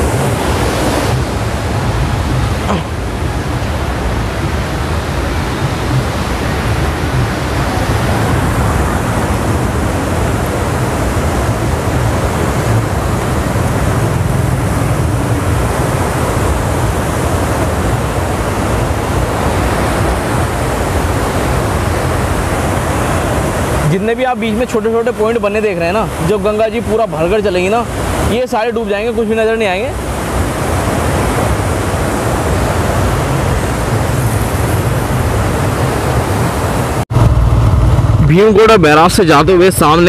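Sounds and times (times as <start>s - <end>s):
turbulent water rushing: 0.0s - 40.0s
low rumble: 37.1s - 38.8s.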